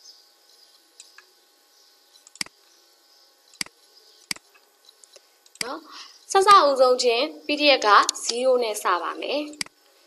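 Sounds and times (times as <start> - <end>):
computer mouse clicking: 0.5 - 1.3, 2.1 - 2.6, 3.5 - 5.7.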